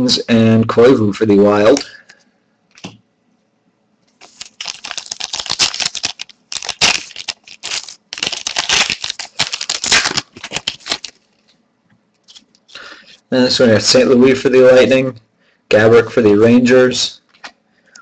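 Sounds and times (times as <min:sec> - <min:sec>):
foil wrapper crinkling and tearing: 0:04.1 - 0:11.5.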